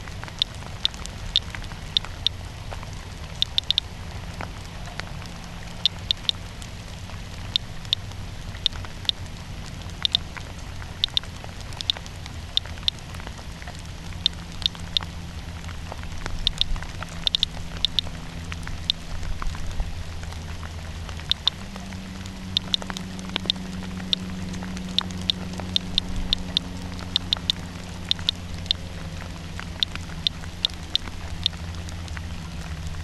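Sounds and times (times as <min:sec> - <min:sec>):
low rumble: 0:00.0 - 0:33.0
geiger counter beeping: 0:03.4 - 0:03.8, 0:05.8 - 0:06.4, 0:11.0 - 0:11.2, 0:16.4 - 0:18.1, 0:21.3 - 0:21.6, 0:22.6 - 0:24.3, 0:24.9 - 0:28.8.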